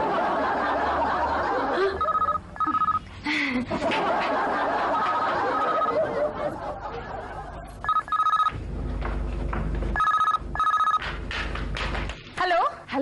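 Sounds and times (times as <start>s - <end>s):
telephone ringing: 2.0s - 3.1s, 5.4s - 6.1s, 7.8s - 8.6s, 10.0s - 11.0s.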